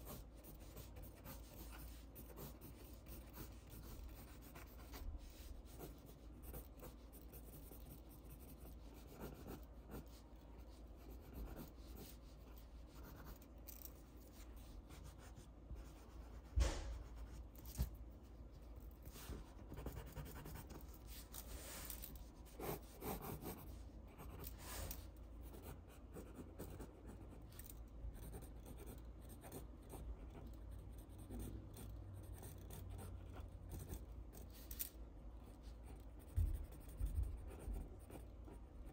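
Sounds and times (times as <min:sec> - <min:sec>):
pencil scratching on paper: 0:00.0 - 0:17.9, 0:18.6 - 0:34.6, 0:35.4 - 0:38.9
sharp knock: 0:16.6 - 0:17.1.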